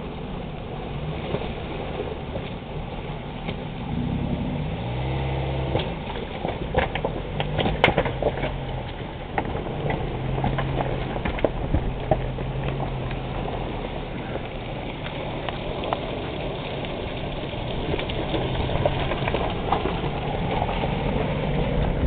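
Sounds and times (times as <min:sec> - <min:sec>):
car engine revving: 0:03.4 - 0:22.0
tyres clicking over rocks: 0:05.7 - 0:22.0.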